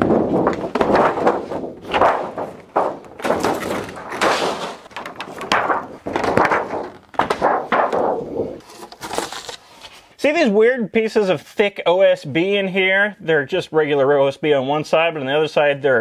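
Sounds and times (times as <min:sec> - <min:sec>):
thunks: 0:00.0 - 0:08.4
metal sheet rattling: 0:00.0 - 0:09.5.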